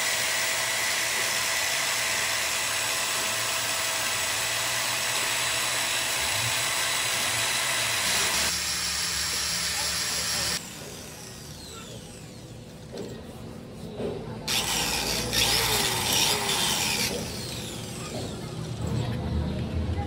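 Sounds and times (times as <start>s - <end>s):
tool scraping on tire: 12.9s - 18.5s.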